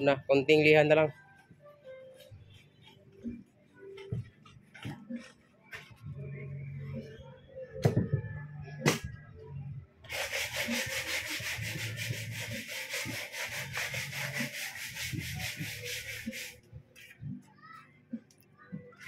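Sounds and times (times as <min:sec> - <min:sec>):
scratchy sanding: 0:10.1 - 0:16.6.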